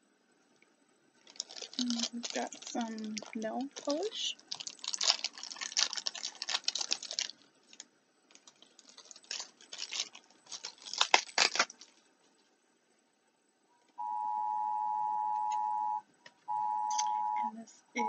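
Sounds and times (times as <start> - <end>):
packaging rustling and clicking: 1.2 - 12.0
steady tone: 14.0 - 18.0.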